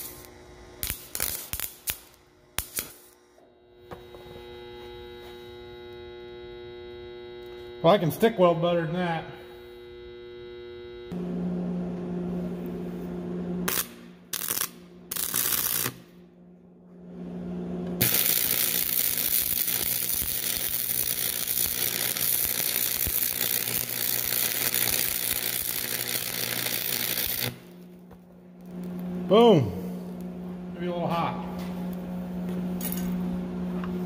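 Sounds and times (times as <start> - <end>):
welding arc crackling: 0.0 - 11.2, 13.6 - 16.2, 18.0 - 28.0
welding machine electrical hum: 0.0 - 34.0.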